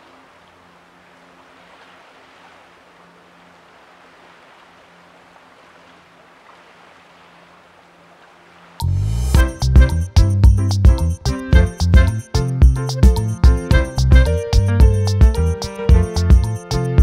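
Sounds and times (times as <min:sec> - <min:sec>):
sea water washing: 0:00.0 - 0:09.0.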